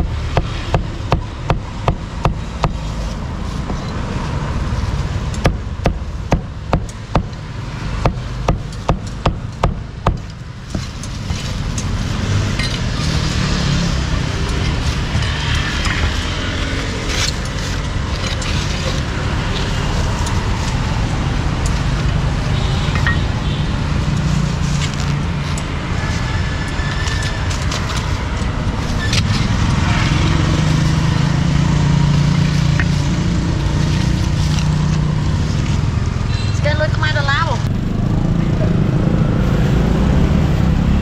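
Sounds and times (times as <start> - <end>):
road traffic noise: 0.0 - 41.0
sharp knocks and clicks: 5.3 - 7.4, 8.0 - 11.9.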